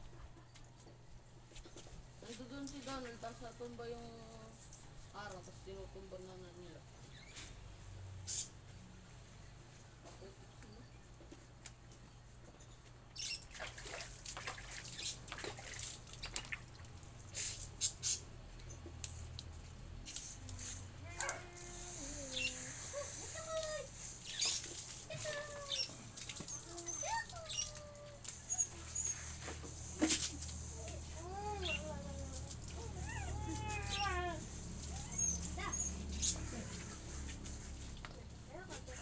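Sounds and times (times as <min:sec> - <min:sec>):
garden hose spraying: 0:02.2 - 0:09.3, 0:13.2 - 0:18.3, 0:19.0 - 0:39.0
water splashing: 0:13.4 - 0:17.1.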